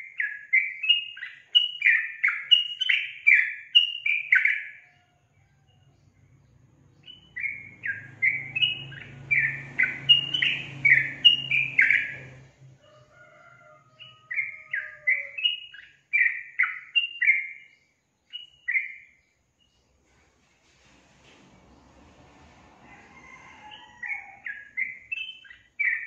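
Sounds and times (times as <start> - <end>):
faint low hum: 4.8 - 15.2
bird singing downward-slurred notes: 5.9 - 12.4.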